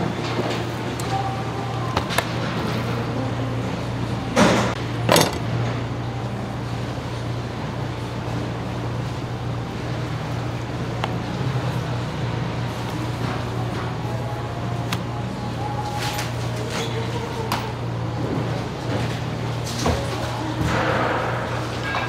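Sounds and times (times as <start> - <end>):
low machine hum: 0.0 - 22.0.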